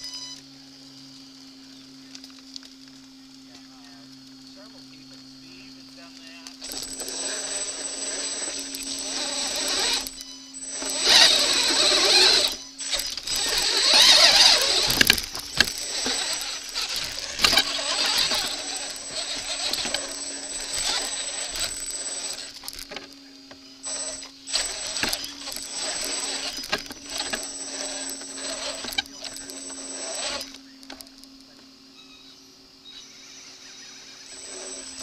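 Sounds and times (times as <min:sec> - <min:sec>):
electric motor whining: 0:03.6 - 0:31.5, 0:33.0 - 0:35.0
tyres scrabbling on rock and gravel: 0:05.8 - 0:31.5.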